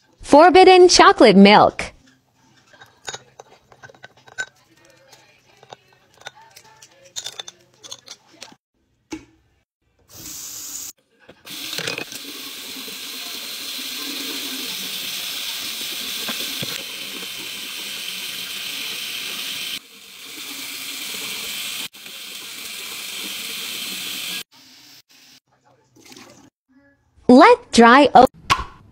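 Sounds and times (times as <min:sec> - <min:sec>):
tap water running into sink: 0:11.5 - 0:24.4.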